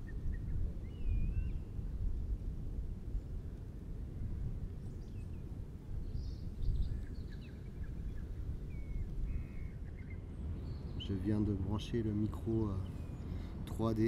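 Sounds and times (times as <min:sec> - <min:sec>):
short whistled bird calls: 0:00.0 - 0:01.8
faint bird chirps: 0:00.0 - 0:02.0, 0:12.7 - 0:13.5.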